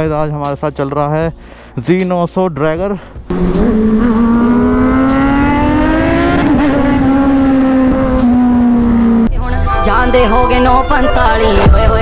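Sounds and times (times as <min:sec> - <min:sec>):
motorcycle engine revving high: 0:03.3 - 0:09.3.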